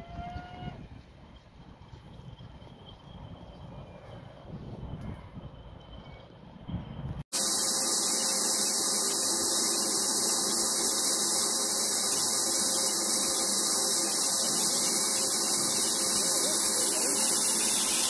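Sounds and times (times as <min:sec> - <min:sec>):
steam locomotive blowing off steam: 0:07.3 - 0:18.0.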